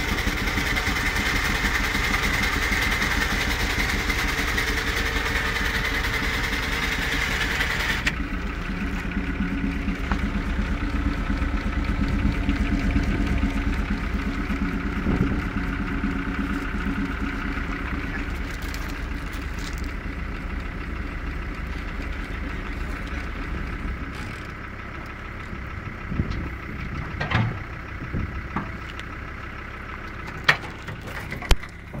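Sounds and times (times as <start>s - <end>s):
vacuum pump running: 0.0s - 24.7s
engine running steadily: 0.0s - 32.0s
low hum: 0.0s - 32.0s.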